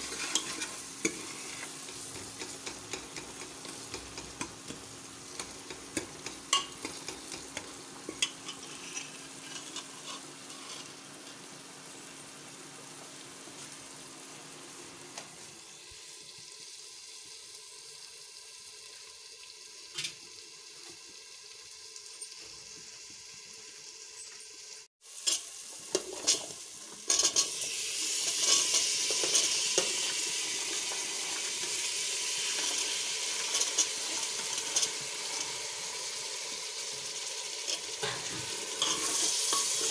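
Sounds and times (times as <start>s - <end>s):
ladle scraping pot: 0.0s - 4.5s, 5.3s - 11.0s, 37.6s - 39.9s
masala sizzling: 0.0s - 39.9s.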